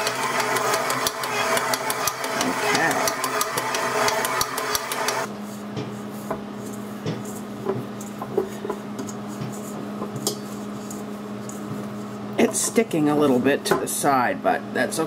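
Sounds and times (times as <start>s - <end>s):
stand mixer kneading dough: 0.0s - 5.9s
hands working dough in bowl: 0.3s - 13.0s.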